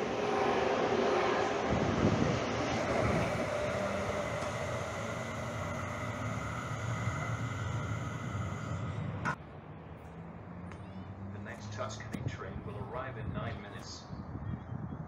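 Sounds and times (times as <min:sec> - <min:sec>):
train steady whine: 0:00.0 - 0:13.9
train rolling rumble: 0:00.0 - 0:14.4.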